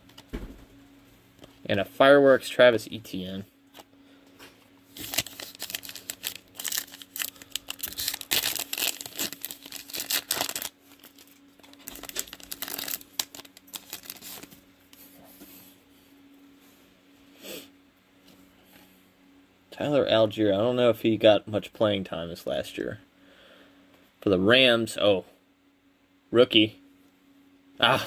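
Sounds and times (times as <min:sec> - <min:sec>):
foil wrapper tearing and crinkling: 0:04.9 - 0:14.6.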